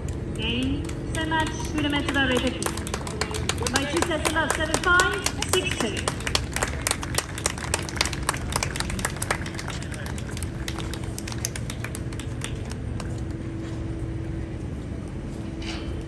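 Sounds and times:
steady low hum: 0.0s - 16.0s
small crowd applause: 1.1s - 13.4s.

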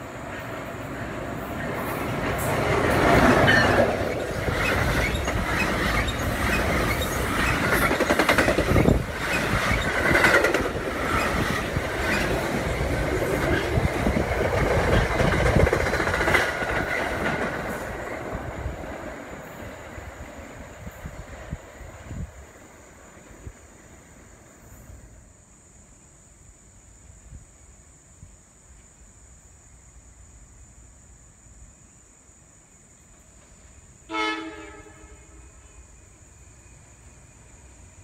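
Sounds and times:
train wheels clattering: 1.7s - 18.4s
high wheel squeal: 3.4s - 8.0s.

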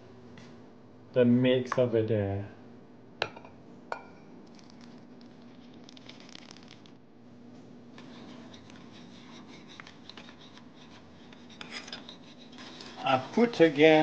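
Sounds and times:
faint steady hum: 0.0s - 14.0s
whisk scraping a ceramic bowl: 8.0s - 14.0s.

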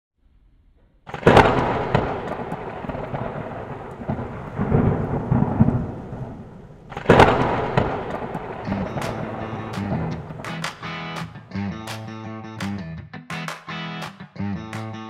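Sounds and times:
thunder rumbling: 1.1s - 11.0s.

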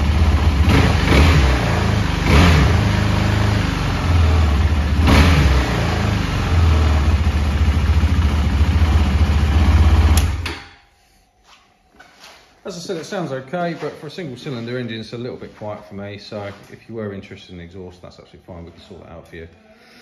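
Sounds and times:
motorcycle engine idling: 0.0s - 0.7s, 5.6s - 10.4s.

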